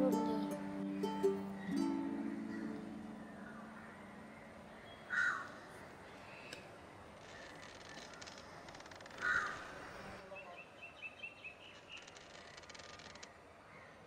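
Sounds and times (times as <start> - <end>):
faint background hiss: 0.0 - 7.4
crow cawing: 5.1 - 6.5, 9.1 - 10.0.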